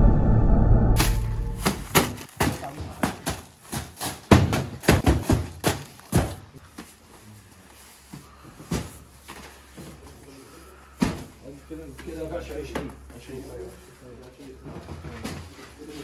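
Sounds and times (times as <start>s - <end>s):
cardboard boxes knocking and thudding: 1.6s - 6.9s, 8.6s - 10.0s.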